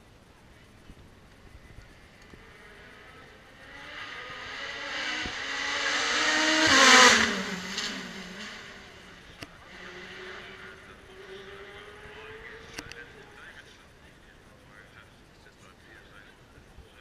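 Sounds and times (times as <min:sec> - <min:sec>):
race car passing by: 0:01.6 - 0:13.7.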